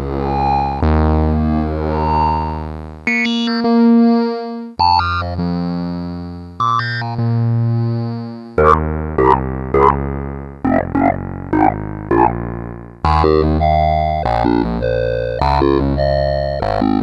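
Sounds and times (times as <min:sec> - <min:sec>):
short sharp synthesizer notes: 0:00.0 - 0:02.7
sustained synthesizer notes: 0:00.0 - 0:04.6, 0:06.8 - 0:17.0.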